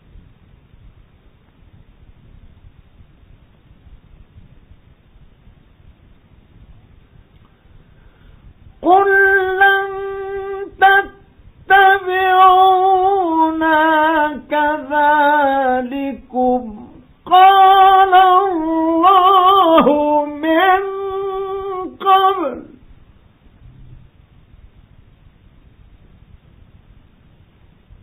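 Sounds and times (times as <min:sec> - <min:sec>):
man chanting: 0:08.8 - 0:22.8.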